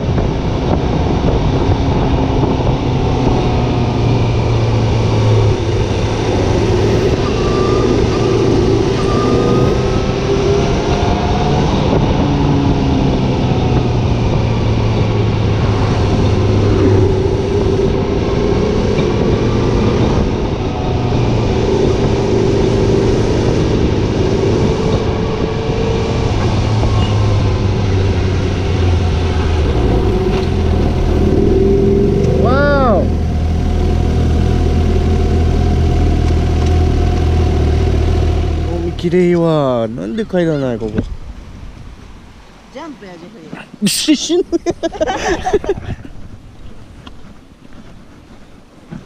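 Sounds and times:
wind noise: 0.0 - 49.0
motorcycle engine running: 21.2 - 40.0.

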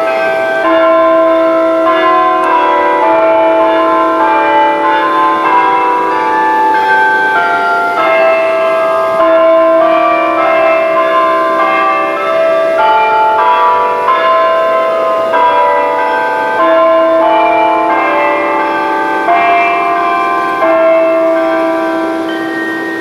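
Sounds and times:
church bells playing a tune: 0.0 - 23.0.

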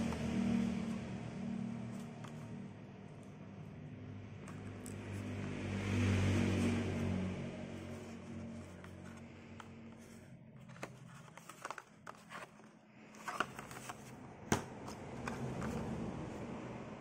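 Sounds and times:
plastic and cardboard crinkling: 9.8 - 14.2.

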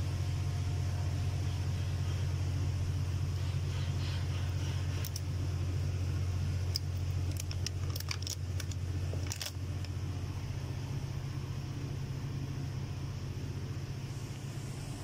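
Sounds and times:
machinery humming: 0.0 - 15.0.

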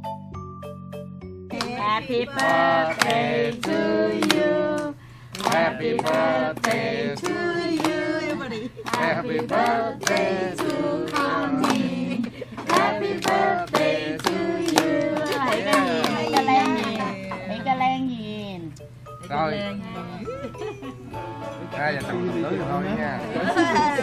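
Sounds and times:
voices singing: 1.5 - 17.6
hands clapping in time: 1.6 - 8.0, 8.9 - 12.0, 12.6 - 17.4.

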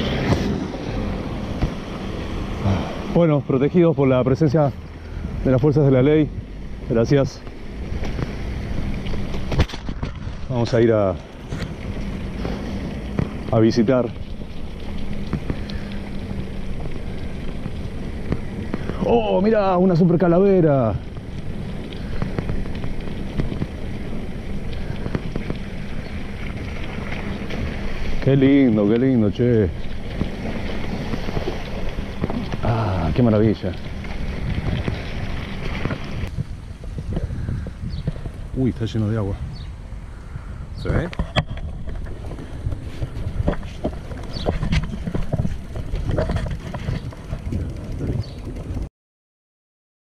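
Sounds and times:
wind rumbling on microphone: 0.0 - 48.9
bicycle rolling over cobblestones: 5.4 - 39.0, 41.0 - 48.9
bike clicks and rattles: 11.4 - 38.4, 41.0 - 48.9.

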